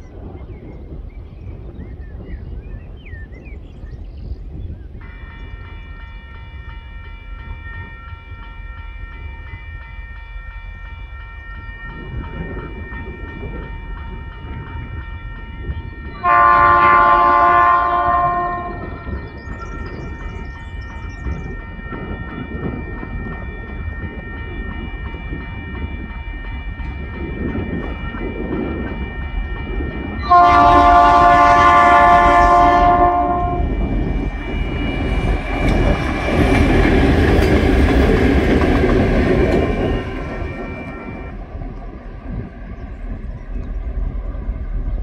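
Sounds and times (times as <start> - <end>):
locomotive horn: 5.0 - 9.8, 13.6 - 19.4, 21.3 - 36.6
level crossing warning bell: 5.0 - 41.4
locomotive engine noise: 11.3 - 45.0
train wheels clattering: 16.3 - 41.8.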